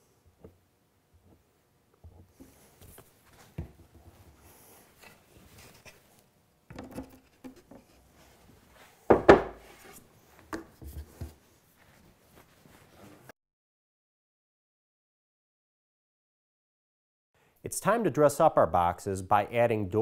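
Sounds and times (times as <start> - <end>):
wood knocking on wood: 9.1 - 9.6
wood scraping on wood: 9.4 - 10.1.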